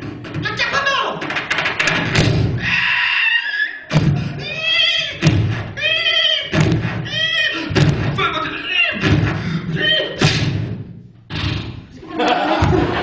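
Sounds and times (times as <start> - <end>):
low thumps: 1.2 - 2.7, 3.9 - 13.0
man imitating horse: 4.3 - 9.0.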